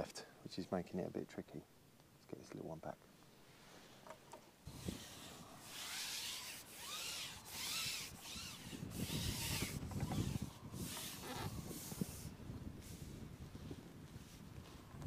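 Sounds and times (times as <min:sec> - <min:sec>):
faint squeaks: 0:04.7 - 0:12.3
fishing pole swishing through hands: 0:04.7 - 0:12.3.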